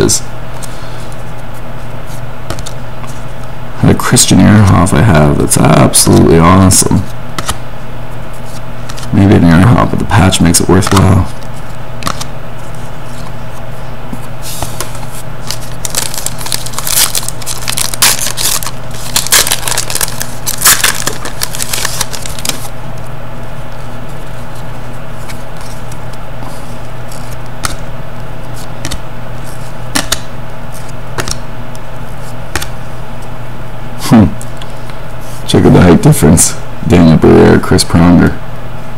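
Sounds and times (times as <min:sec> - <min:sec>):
steady low hum: 0:00.0 - 0:38.9
cards flipping and sliding: 0:00.6 - 0:03.2, 0:07.0 - 0:07.6, 0:08.4 - 0:09.1, 0:10.7 - 0:23.1, 0:28.5 - 0:31.4, 0:32.2 - 0:32.7.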